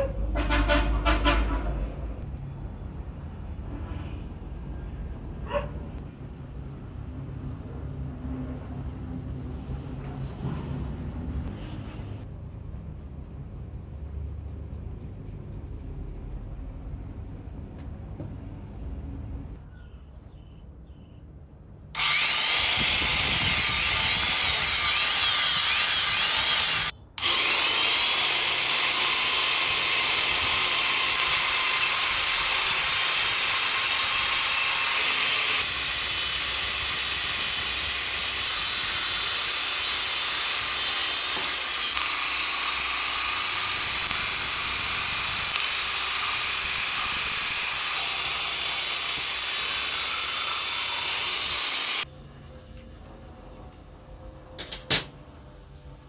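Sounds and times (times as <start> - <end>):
saw blade cutting metal rod: 22.0 - 52.0
reciprocating saw motor whine: 22.0 - 52.1.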